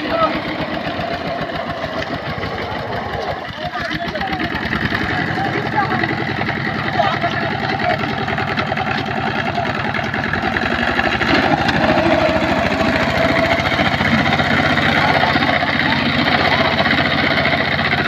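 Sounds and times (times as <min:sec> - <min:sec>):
diesel engine knocking: 0:00.0 - 0:18.0.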